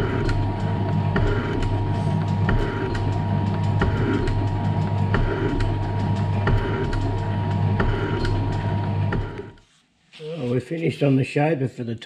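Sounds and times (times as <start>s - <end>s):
motor hum: 0.0s - 9.6s.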